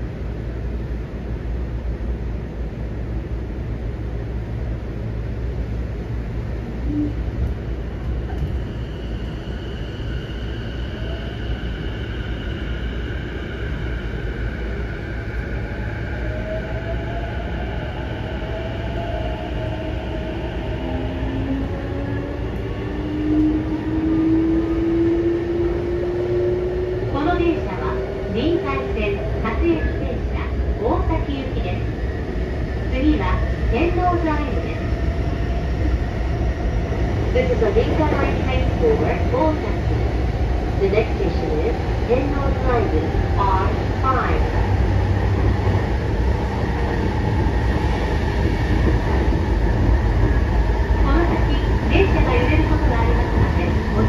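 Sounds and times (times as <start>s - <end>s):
train wheels rumbling: 6.0s - 54.0s.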